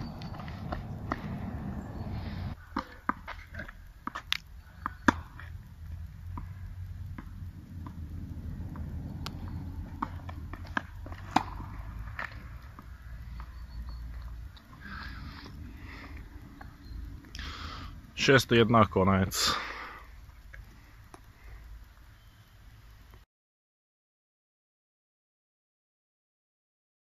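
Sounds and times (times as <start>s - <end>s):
tennis ball bouncing on court: 0.0s - 2.1s, 2.7s - 5.6s, 6.3s - 14.8s
low rumble: 0.0s - 2.6s, 4.5s - 19.2s
tennis ball struck with rackets: 2.7s - 5.5s, 8.7s - 12.9s.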